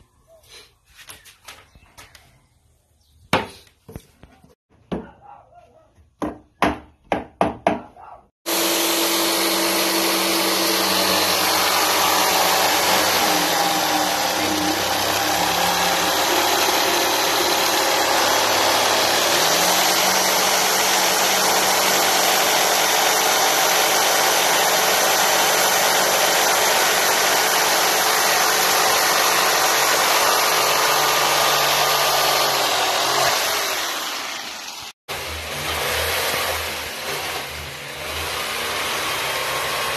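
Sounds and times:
electric jigsaw sawing plywood: 8.4s - 39.9s.

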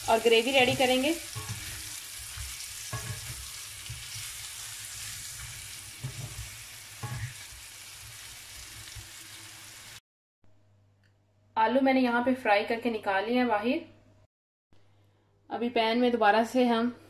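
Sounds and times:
potatoes sizzling in oil: 0.0s - 10.0s
wooden spatula scraping a pan: 0.1s - 8.2s.

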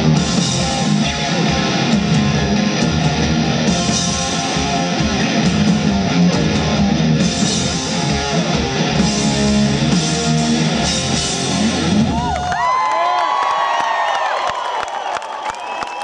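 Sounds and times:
rock band playing live: 0.0s - 12.7s
crowd cheering and whistling: 10.9s - 16.0s.

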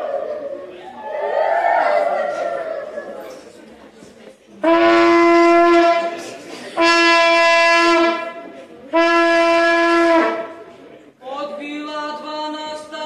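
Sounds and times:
hand-held horn blasts: 4.6s - 6.2s, 6.8s - 8.4s, 9.0s - 10.5s.

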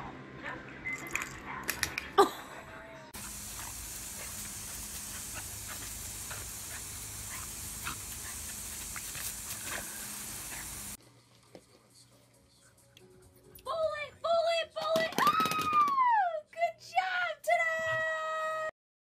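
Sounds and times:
hose nozzle spray hissing: 3.2s - 11.0s.

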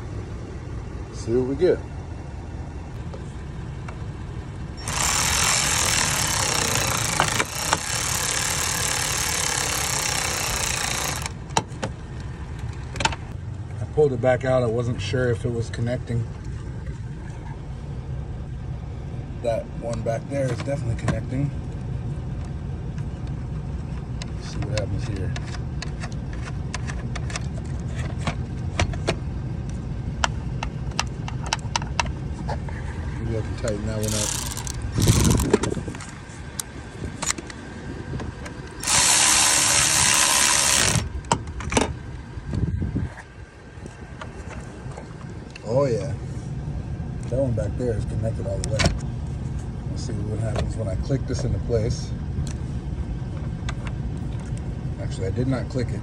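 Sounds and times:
steady low rumble: 0.0s - 56.0s
power driver running: 4.8s - 11.6s, 33.9s - 35.8s, 38.4s - 41.4s.

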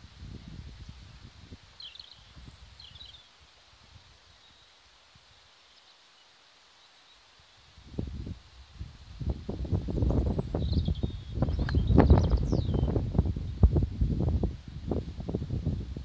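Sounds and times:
wind buffeting microphone: 0.0s - 3.2s, 7.8s - 16.0s
small bird chirping: 0.8s - 3.4s, 10.1s - 13.6s.

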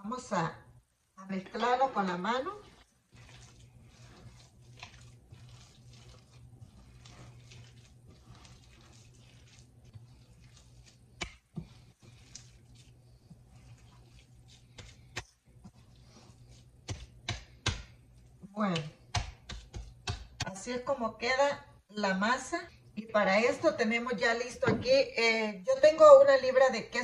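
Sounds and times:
low steady hum: 0.0s - 27.0s
wet squishing of dough: 2.1s - 20.6s.

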